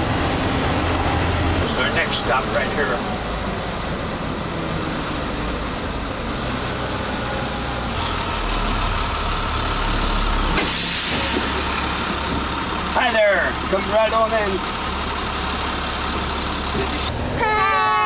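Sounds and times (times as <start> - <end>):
bus engine drone: 0.0 - 18.0
road rumble: 0.0 - 18.0
loud air hiss: 10.6 - 11.5.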